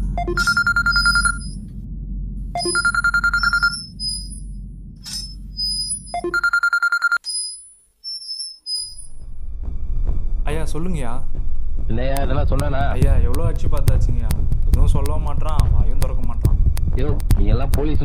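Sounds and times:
low droning background score: 0.0 - 6.3, 9.0 - 18.0
mobile phone trilling ring: 0.2 - 1.6, 2.6 - 4.4, 5.8 - 9.1.

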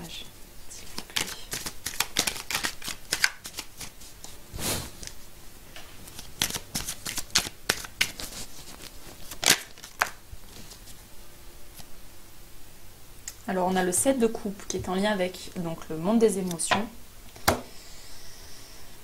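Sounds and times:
cards being shuffled: 0.8 - 5.2, 6.0 - 11.0.

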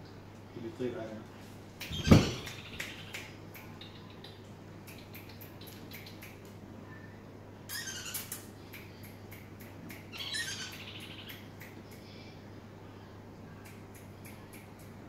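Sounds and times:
parakeets chirping: 1.9 - 6.4, 7.7 - 9.0, 10.0 - 11.6.

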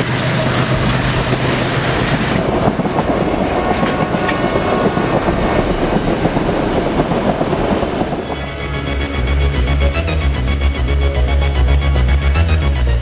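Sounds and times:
train wheels clattering on rails: 0.0 - 8.7.

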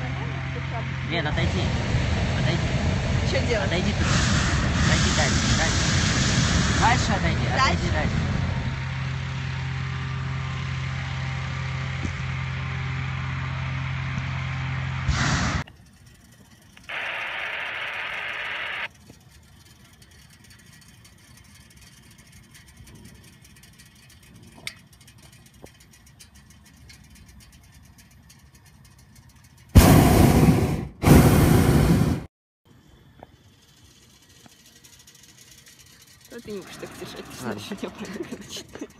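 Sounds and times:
engine-driven fan drone: 0.0 - 38.9
loud rushes of air: 1.5 - 8.6, 14.9 - 15.6, 29.8 - 32.3
hiss: 4.0 - 7.1.

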